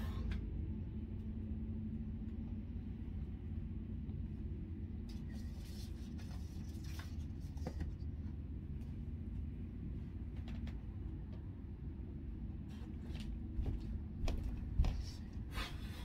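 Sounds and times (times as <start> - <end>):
low room hum: 0.0 - 16.0
book pages rustling: 5.4 - 8.0.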